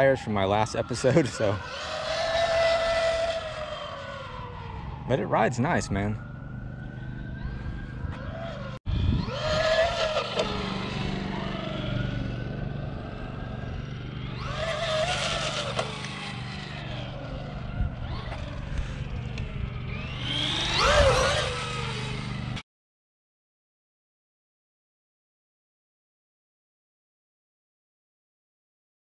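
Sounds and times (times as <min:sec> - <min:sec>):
electric motor whining: 0:00.7 - 0:22.6.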